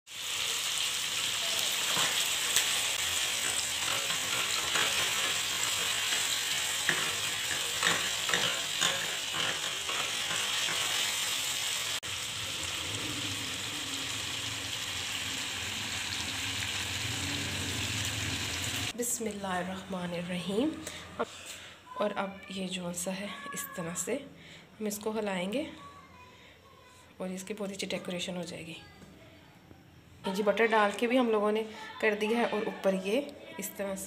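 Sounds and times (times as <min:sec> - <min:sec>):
chicken sizzling in oil: 0:00.1 - 0:19.0.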